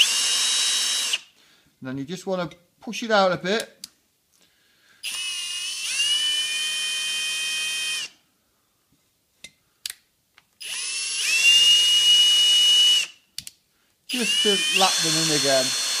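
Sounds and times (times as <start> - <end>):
cordless drill motor whining: 0.0 - 1.3, 5.0 - 8.1, 10.6 - 13.2, 14.1 - 16.0.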